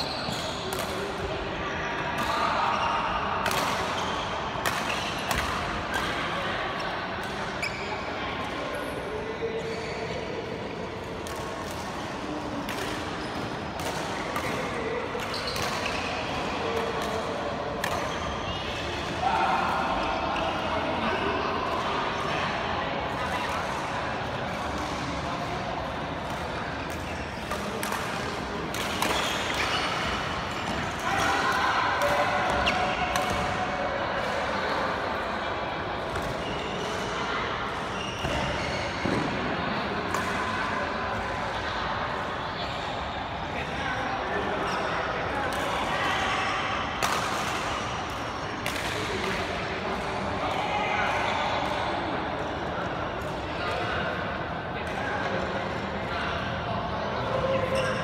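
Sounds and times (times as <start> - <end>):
rackets hitting shuttlecock: 3.4 - 6.1, 26.2 - 34.5, 47.0 - 49.6.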